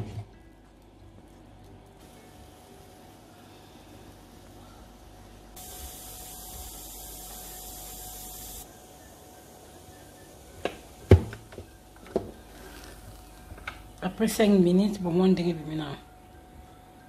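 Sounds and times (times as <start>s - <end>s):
steam hissing from waffle maker: 2.0s - 11.2s.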